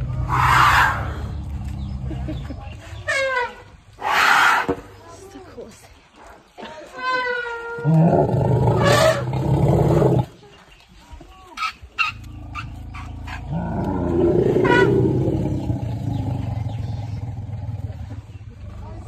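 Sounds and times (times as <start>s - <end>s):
elephants rumbling and roaring: 0.0s - 4.9s, 7.2s - 10.4s, 12.0s - 19.0s.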